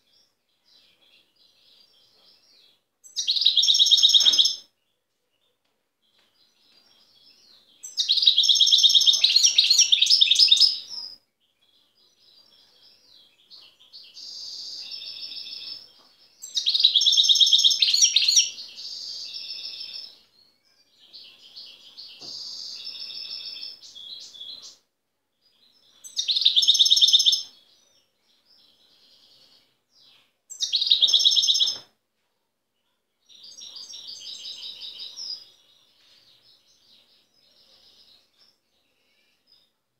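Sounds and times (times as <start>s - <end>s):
goldfinch singing: 6.5s - 11.2s, 13.6s - 20.1s.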